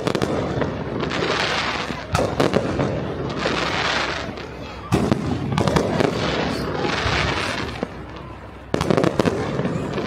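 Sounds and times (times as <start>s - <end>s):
firework bangs: 0.0s - 10.0s
fireworks crackling: 0.0s - 10.0s.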